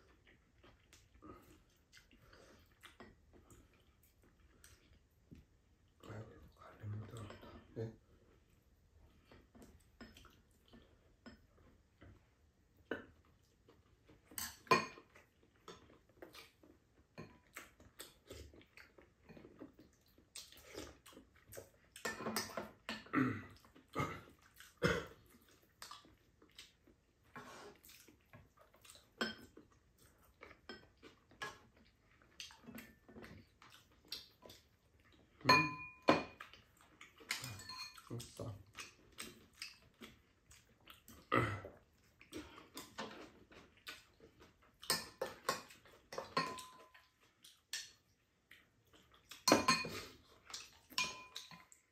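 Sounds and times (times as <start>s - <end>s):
chopsticks tapping ceramic bowls: 35.5s - 36.4s, 44.9s - 46.9s, 51.0s - 51.7s.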